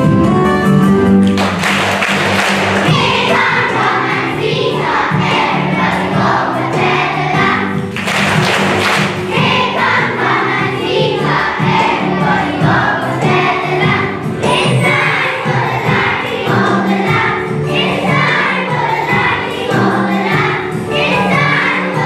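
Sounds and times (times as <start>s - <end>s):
musical accompaniment: 0.0s - 22.0s
children singing together: 2.2s - 22.0s.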